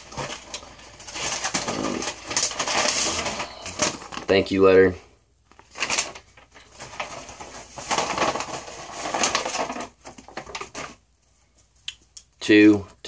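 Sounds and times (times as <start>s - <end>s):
paper rustling and crinkling: 0.0s - 4.7s, 5.5s - 11.8s.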